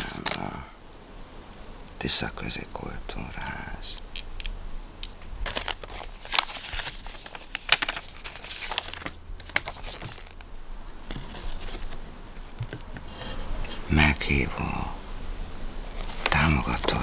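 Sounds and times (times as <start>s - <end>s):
paper ripping and rustling: 0.0s - 0.6s, 5.4s - 12.8s, 15.9s - 17.0s.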